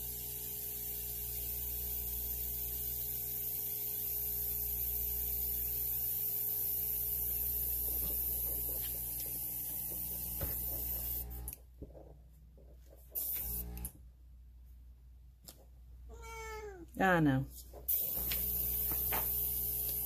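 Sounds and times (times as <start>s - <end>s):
compressor humming: 17.0s - 20.0s.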